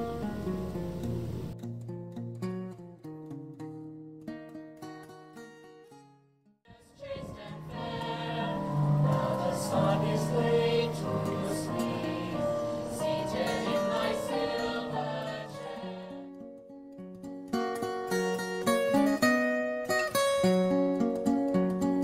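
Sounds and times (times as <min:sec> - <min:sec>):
plucked guitar tune: 0:00.0 - 0:06.4, 0:07.6 - 0:22.0
youth choir singing: 0:06.7 - 0:16.3.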